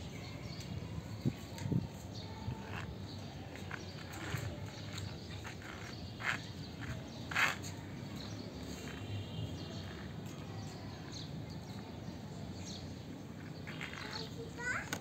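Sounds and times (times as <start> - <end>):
low outdoor background noise: 0.0 - 15.0
plastic toy scraping on concrete: 2.2 - 10.4, 13.4 - 15.0.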